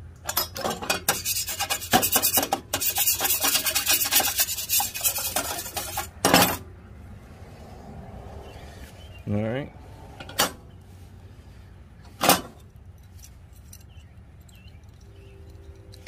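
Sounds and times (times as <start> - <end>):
scraping or filing strokes: 1.0 - 6.2.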